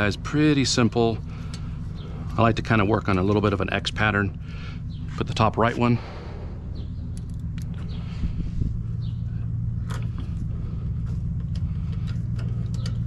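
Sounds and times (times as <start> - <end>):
engine droning: 0.0 - 13.0
light metallic clicks: 11.3 - 13.0.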